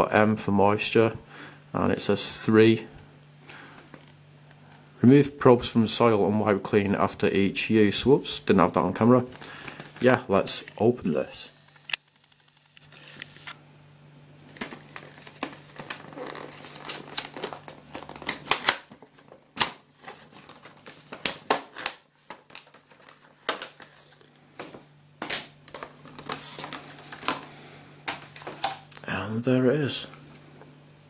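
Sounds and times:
plastic packaging crinkling: 8.6s - 10.8s, 14.4s - 29.0s.

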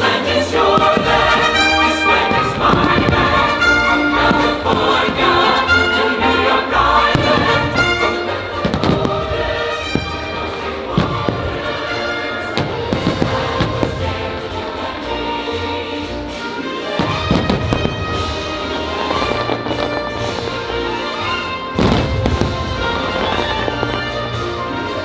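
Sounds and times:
fireworks bursting: 0.0s - 25.0s
patriotic music soundtrack: 0.0s - 25.0s
sharp firework bangs: 21.8s - 24.1s.

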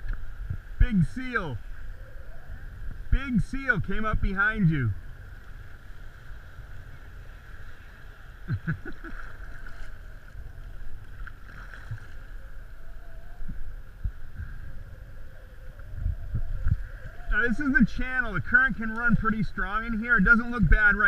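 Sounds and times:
wind on microphone: 0.0s - 21.0s
kayak paddle splashing: 5.1s - 13.0s.

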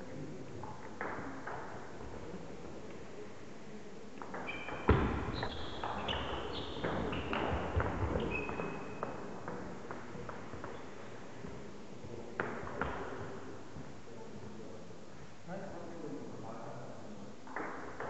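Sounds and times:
sneakers squeaking on wooden floor: 4.3s - 9.3s.

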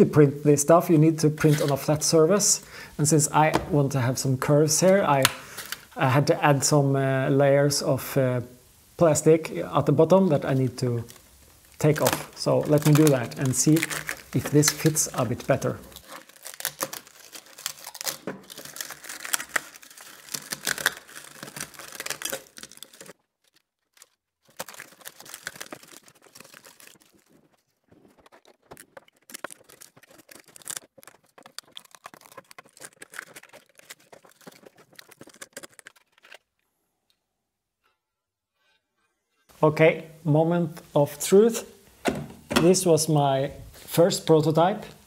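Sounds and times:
plastic snapping and crackling: 5.2s - 5.8s, 11.0s - 36.6s.

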